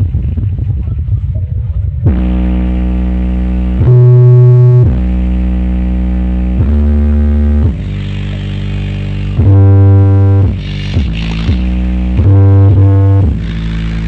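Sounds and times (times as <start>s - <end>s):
deep synthesizer bass notes: 0.0s - 14.0s.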